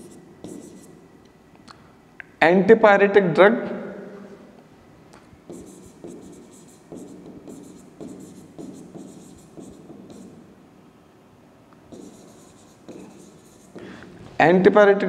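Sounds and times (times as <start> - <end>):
pen writing strokes: 0.0 - 1.0, 5.5 - 10.4, 11.9 - 14.0.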